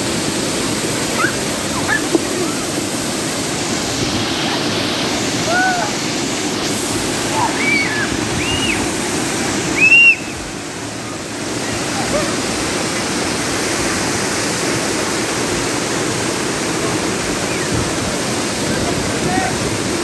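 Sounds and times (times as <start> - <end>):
waterfall rushing over rock: 0.0 - 20.0.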